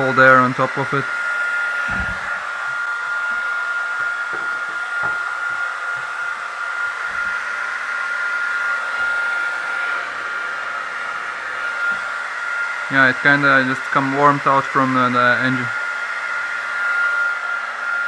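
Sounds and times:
hair dryer blowing: 0.0s - 18.0s
fan motor whine: 1.4s - 12.9s
low thumps: 1.9s - 2.5s.

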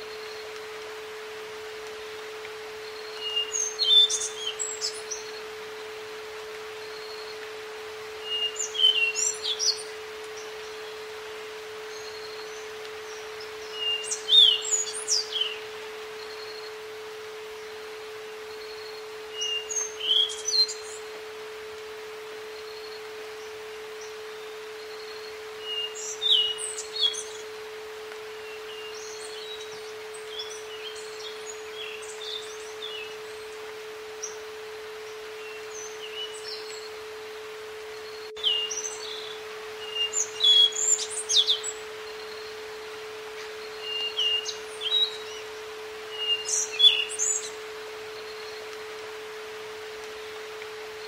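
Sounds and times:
background hiss: 0.0s - 51.0s
steady pure tone: 0.0s - 51.0s
birds chirping and singing: 3.0s - 5.5s, 11.9s - 16.6s, 24.8s - 27.4s, 38.0s - 42.8s, 43.4s - 48.7s.

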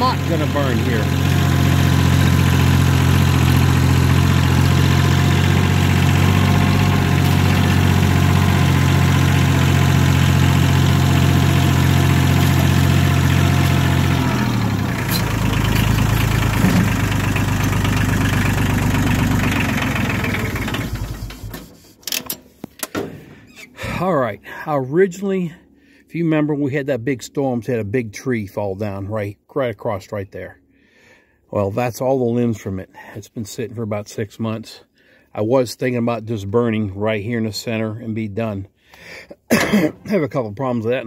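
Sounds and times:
tractor diesel engine running: 0.0s - 24.6s.

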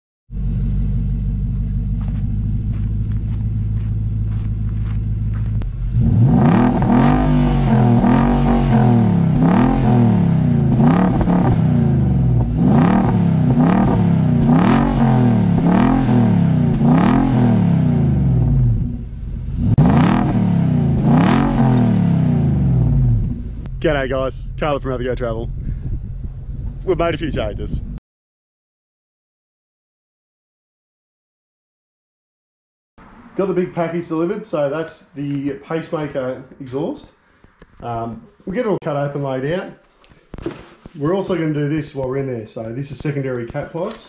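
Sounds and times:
car engine idling and revving: 0.3s - 28.0s.

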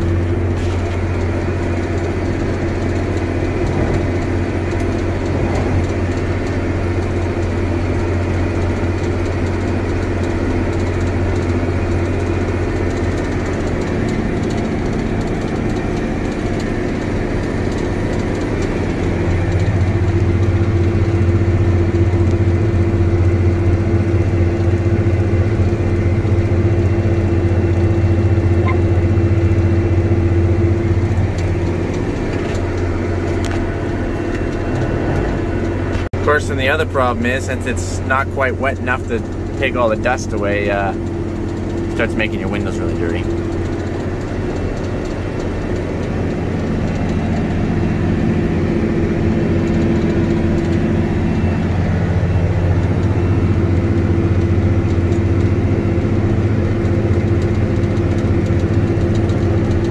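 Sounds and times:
tractor diesel engine drone: 0.0s - 59.9s.

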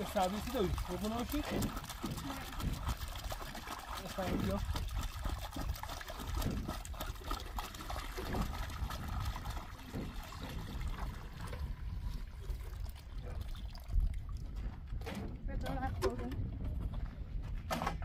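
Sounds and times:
water pouring and splashing: 0.0s - 17.0s.

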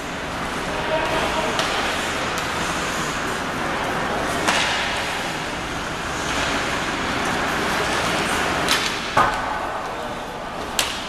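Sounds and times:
ice rink crowd noise: 0.0s - 11.0s
hockey stick hitting puck: 0.8s - 2.7s, 4.4s - 5.2s, 8.7s - 9.8s, 10.7s - 11.0s.

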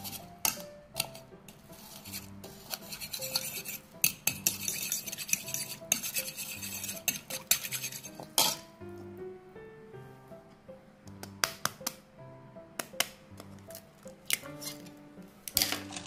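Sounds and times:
fork scraping and clinking in bowl: 0.0s - 8.7s, 14.3s - 14.9s.

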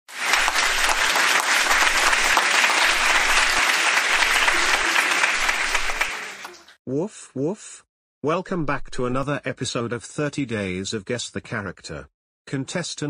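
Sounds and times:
audience applause: 0.1s - 6.8s.

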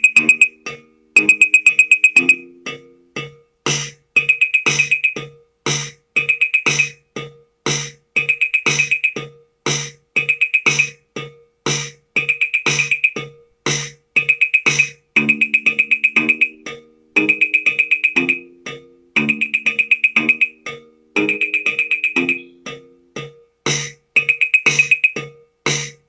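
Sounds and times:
high tick rolls: 0.0s - 0.5s, 1.2s - 2.4s.

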